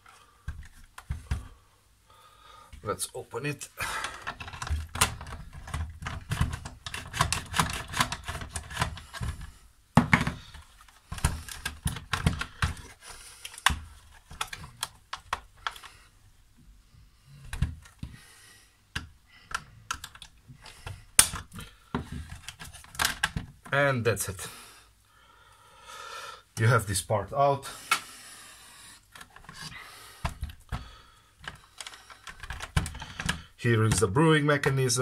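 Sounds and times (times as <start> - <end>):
plastic clip tabs clicking: 10.2 - 16.0, 19.0 - 21.7, 31.4 - 34.0
sharp plastic snap: 19.0 - 21.6.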